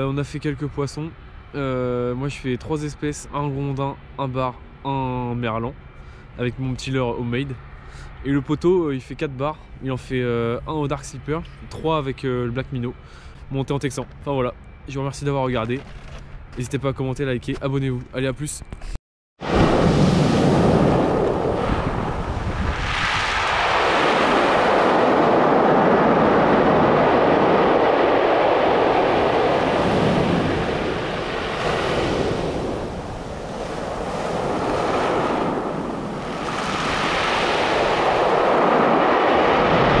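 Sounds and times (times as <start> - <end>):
surf breaking on shingle beach: 19.4 - 40.0.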